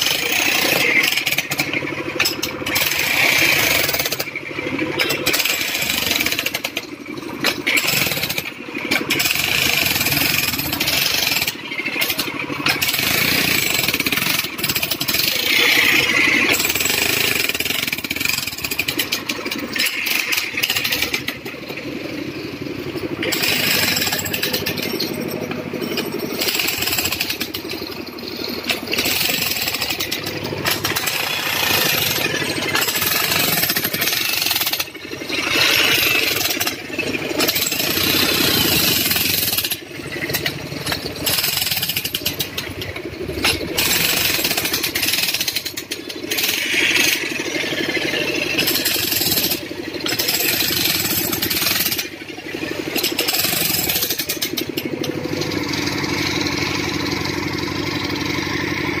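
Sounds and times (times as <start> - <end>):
demolition hammer chiselling asphalt: 0.0 - 59.0.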